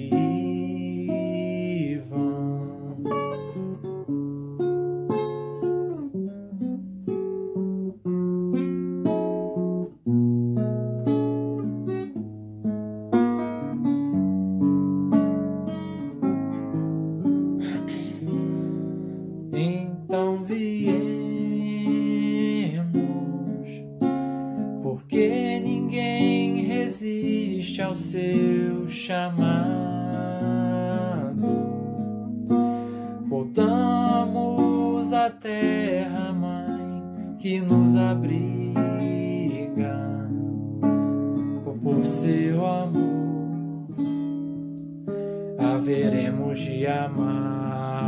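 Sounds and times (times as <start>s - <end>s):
man singing slow song: 0.0s - 3.4s, 19.5s - 23.9s, 24.8s - 32.0s, 32.8s - 40.6s, 41.5s - 43.5s, 45.6s - 48.0s
fingerpicked classical guitar: 0.0s - 48.0s.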